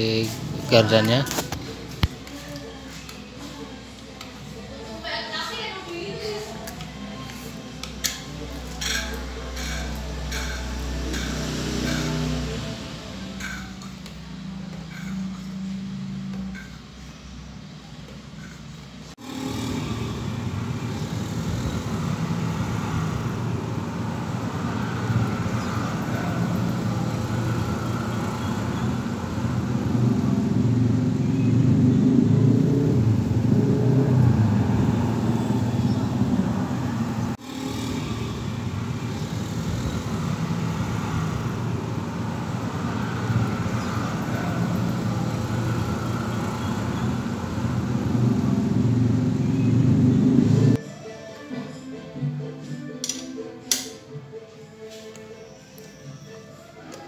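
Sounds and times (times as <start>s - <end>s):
vehicle engine rumbling: 6.9s - 50.8s.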